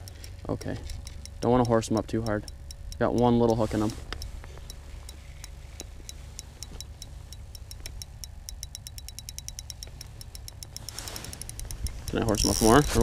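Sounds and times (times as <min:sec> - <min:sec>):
spinning reel clicking: 0:00.0 - 0:13.0
low wind rumble: 0:10.8 - 0:13.0.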